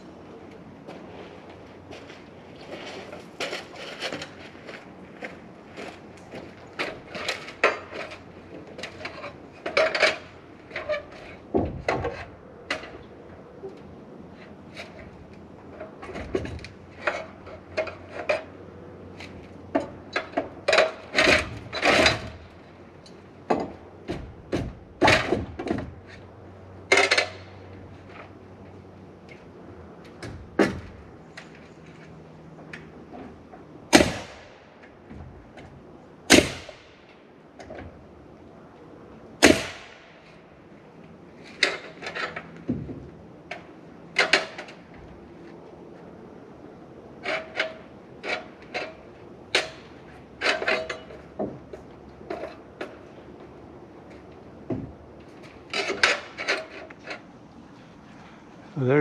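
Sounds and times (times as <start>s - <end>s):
nail gun shots: 33.9s - 34.5s, 36.3s - 36.9s, 39.4s - 40.1s.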